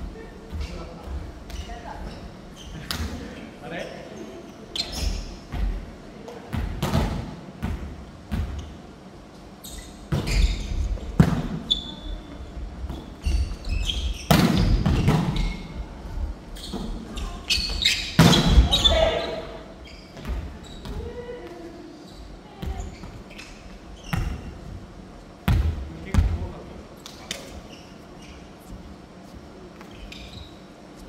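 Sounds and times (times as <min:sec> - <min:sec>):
shoe squeaks: 0:01.5 - 0:03.0, 0:04.1 - 0:05.5, 0:09.6 - 0:12.3, 0:13.0 - 0:15.8, 0:16.6 - 0:21.1, 0:22.0 - 0:24.6, 0:27.4 - 0:28.8, 0:29.8 - 0:31.0.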